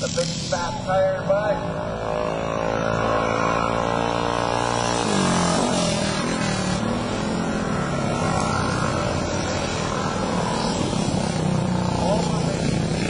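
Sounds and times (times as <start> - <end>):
mini bike engines revving: 0.0 - 13.0.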